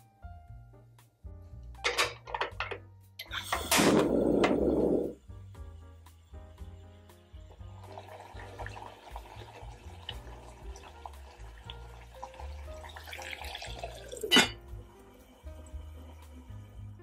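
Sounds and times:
background music: 0.0 - 17.0
liquid bubbling in a saucepan: 7.5 - 14.3
pot lid clanking: 14.2 - 14.6.

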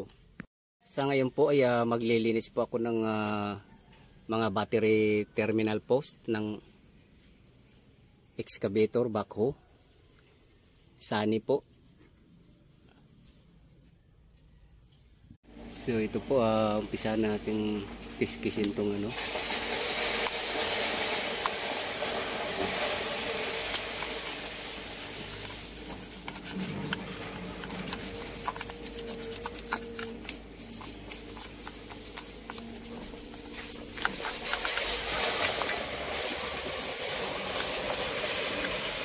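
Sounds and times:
toothbrush scrubbing metal: 18.3 - 20.4, 22.6 - 38.9.

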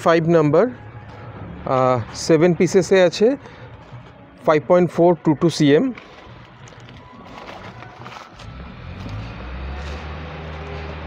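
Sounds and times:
engine droning: 6.0 - 11.0.

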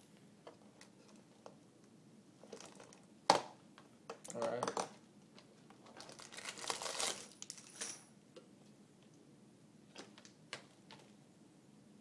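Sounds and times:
plastic pieces clinking in bag: 5.9 - 8.0.

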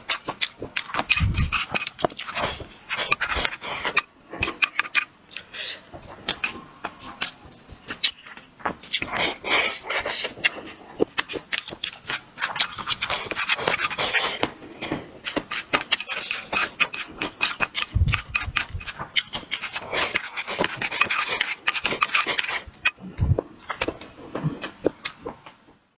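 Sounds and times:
wet chewing and lip-smacking: 0.0 - 25.3
chopsticks scraping ceramic bowl: 0.8 - 5.7, 9.0 - 14.4, 15.2 - 23.0.

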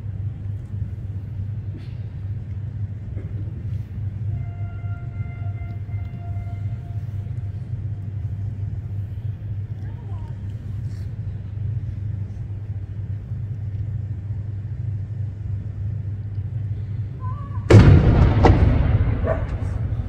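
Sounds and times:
steady low rumble: 0.0 - 20.0
cannon shot with ringing echo: 17.7 - 20.0.

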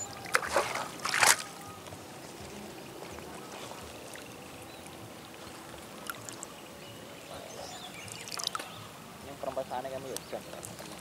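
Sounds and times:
water lapping: 0.0 - 11.0.

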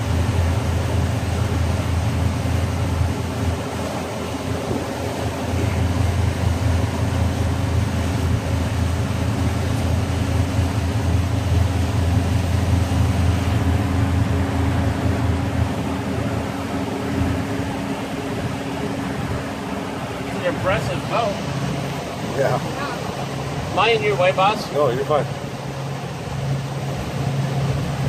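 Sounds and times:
motorboat engine running: 0.0 - 28.0
wind and water hiss: 0.0 - 28.0.

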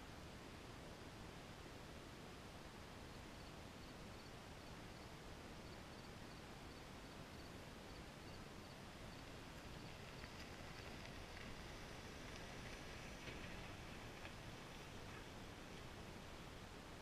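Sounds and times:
faint background hiss: 0.0 - 17.0.

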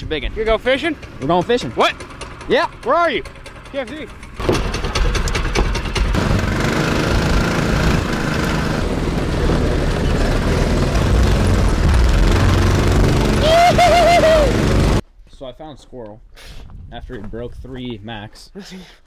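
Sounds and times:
truck engine running: 0.2 - 15.0
clicks and rattles: 1.0 - 6.2
person shouting: 13.2 - 14.6.

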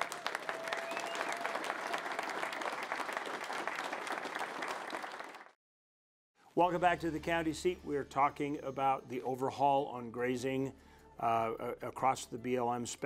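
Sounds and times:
roomful of people applauding: 0.0 - 5.6.

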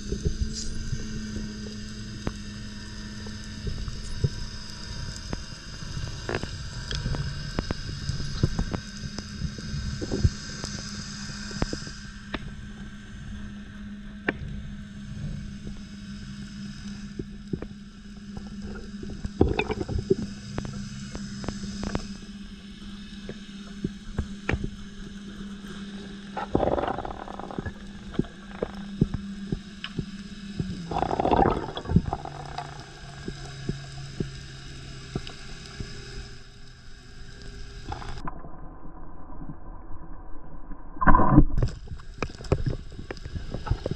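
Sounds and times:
underwater boat motor hum: 0.0 - 39.9, 40.6 - 43.9
bubbly rushes: 19.4 - 20.2, 26.4 - 28.0, 30.9 - 32.8.

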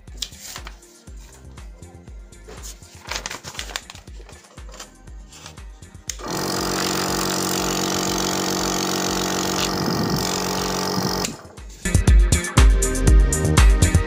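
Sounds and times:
nebulizer motor hum and air rush: 6.2 - 11.7.

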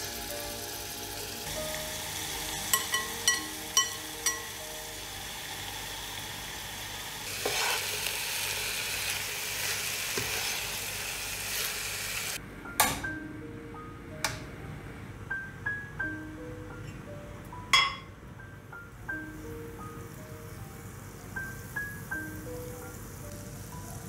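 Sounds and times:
chicken sizzling in oil: 0.0 - 12.4
metal spoon clinking glass bowl: 2.7 - 4.5.

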